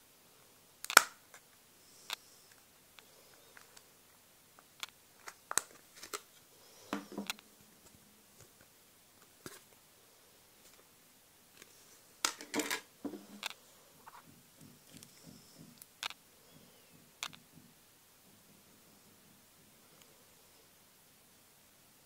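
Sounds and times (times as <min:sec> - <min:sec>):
plastic clips snapping: 0:00.8 - 0:01.2.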